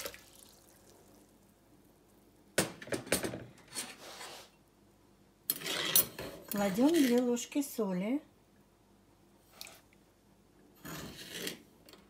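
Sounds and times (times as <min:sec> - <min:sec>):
kitchen utensils and dishes clattering: 0:05.5 - 0:07.4.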